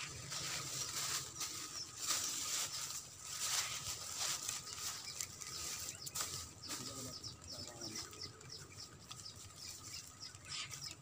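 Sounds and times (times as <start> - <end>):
leaves and grass rustling: 0.0 - 11.0.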